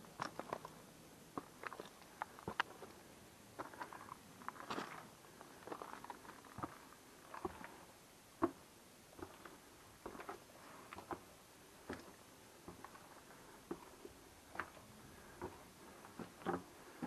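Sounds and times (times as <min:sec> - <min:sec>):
footsteps crunching on stone: 0:03.6 - 0:06.8.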